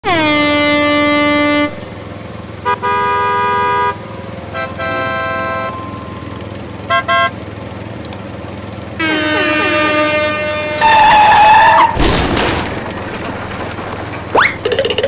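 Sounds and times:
cartoon horn honking: 0.0 - 1.9, 2.6 - 7.4, 9.0 - 12.0.

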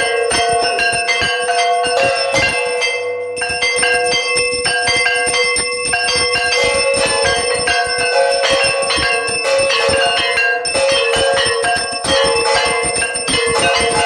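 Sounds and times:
bells ringing: 0.0 - 14.0.

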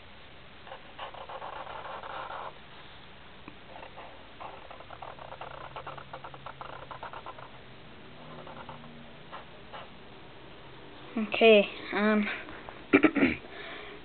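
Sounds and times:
marker scratching on paper: 0.7 - 2.6, 3.7 - 7.6, 8.2 - 9.9.

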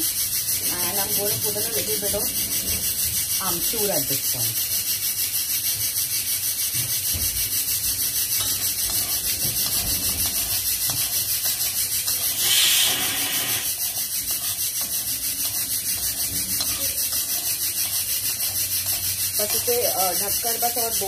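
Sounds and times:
fast-pulsing hiss: 0.0 - 21.0
spoon scraping a pan: 0.0 - 21.0.

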